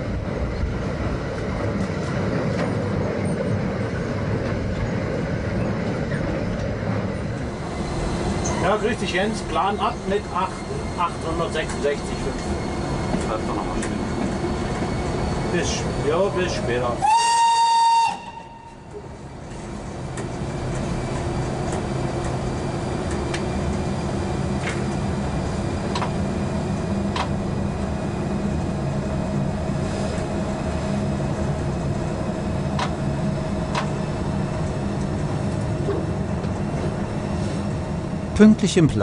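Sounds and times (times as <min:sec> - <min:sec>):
electric locomotive hum: 0:00.0 - 0:39.0
locomotive horn blast: 0:17.0 - 0:18.9.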